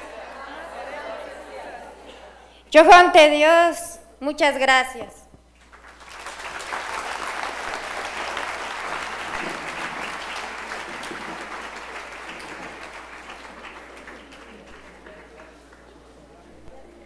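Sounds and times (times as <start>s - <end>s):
audience applauding: 5.6s - 16.2s.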